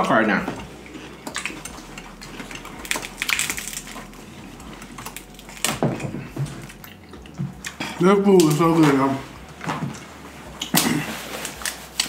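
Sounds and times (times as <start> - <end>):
crab shells cracking: 0.9 - 4.2, 4.8 - 8.7.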